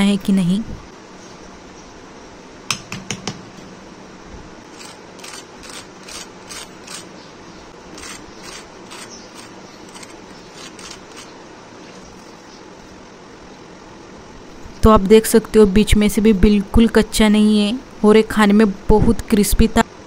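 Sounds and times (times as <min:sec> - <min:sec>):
fork scraping crisp crust: 0:04.7 - 0:07.1, 0:07.9 - 0:11.4.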